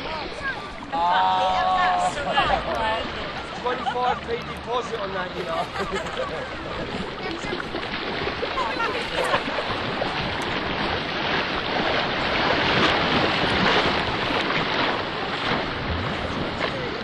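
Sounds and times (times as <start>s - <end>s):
wind noise on microphone: 5.5s - 17.0s.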